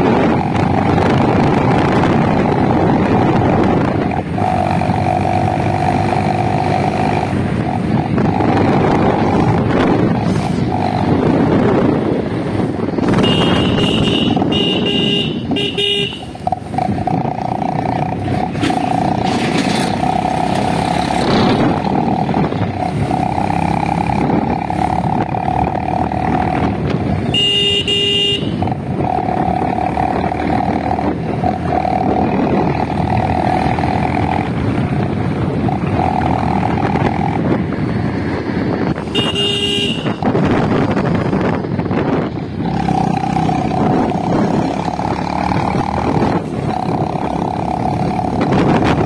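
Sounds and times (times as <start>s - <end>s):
wind rushing over helmet: 0.0s - 19.3s, 28.5s - 49.0s
motorcycle running: 0.0s - 49.0s
horn blasts: 13.1s - 16.4s, 27.3s - 28.7s, 39.1s - 40.4s.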